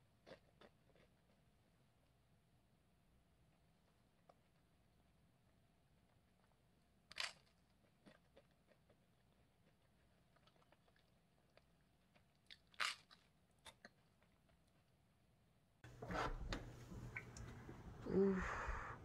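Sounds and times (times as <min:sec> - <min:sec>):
crunching crisp toast: 0:07.1 - 0:08.9, 0:10.3 - 0:14.1.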